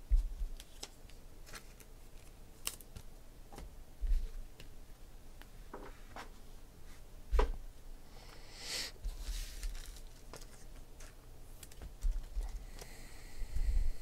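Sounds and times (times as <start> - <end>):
packaging rustling: 9.3 - 12.6.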